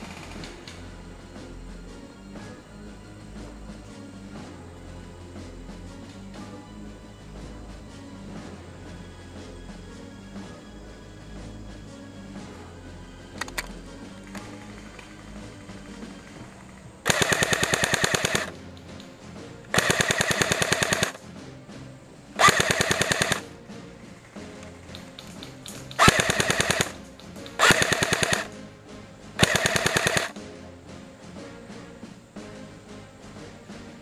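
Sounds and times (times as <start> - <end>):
airsoft gun full-auto bursts: 17.0 - 18.5, 19.7 - 21.2, 22.4 - 23.4, 25.9 - 28.6, 29.4 - 30.4.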